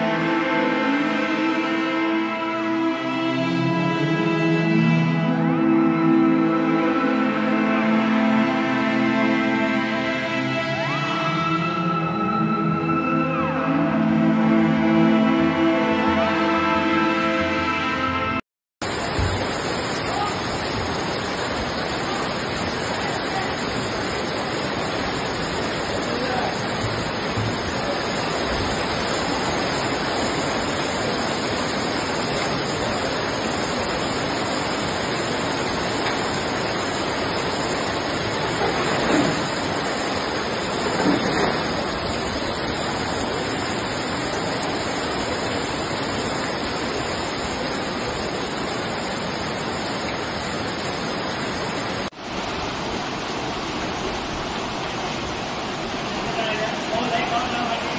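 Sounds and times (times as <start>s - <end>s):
floodwater rushing: 0.0s - 57.9s.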